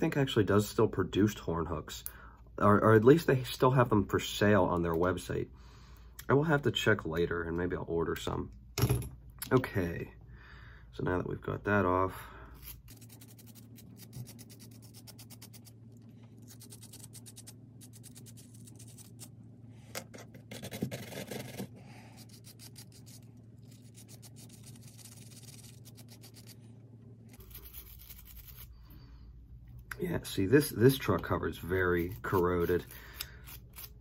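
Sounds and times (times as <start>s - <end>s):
steady low hum: 0.0s - 34.0s
wire brush scratching metal: 16.4s - 19.3s, 27.4s - 28.7s.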